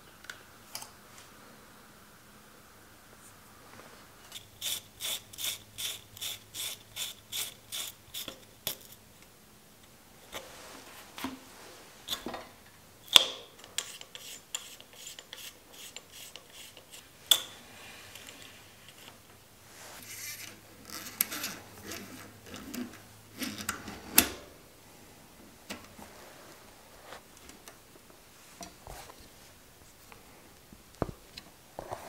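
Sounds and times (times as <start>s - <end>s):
cable rubbing and scraping: 19.8s - 23.7s.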